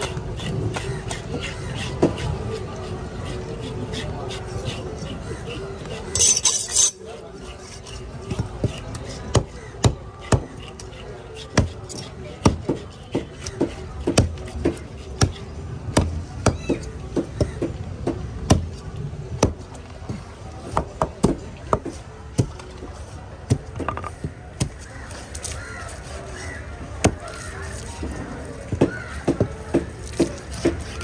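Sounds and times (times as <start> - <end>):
knife chopping fish on wooden board: 0.0 - 6.1, 8.2 - 18.8, 28.7 - 31.0.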